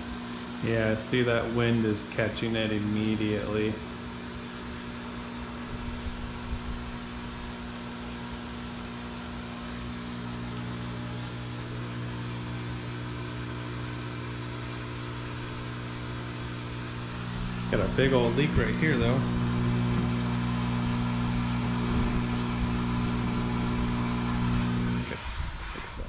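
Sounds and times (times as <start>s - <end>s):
fog machine pump humming: 0.0s - 26.0s
wind rumbling on microphone: 5.7s - 7.5s.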